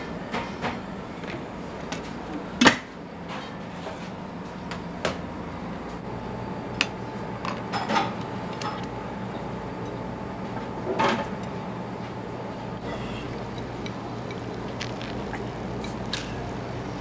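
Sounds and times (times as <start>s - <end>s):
kitchen equipment hum: 0.0s - 17.0s
dishes and utensils clinking: 7.4s - 8.9s.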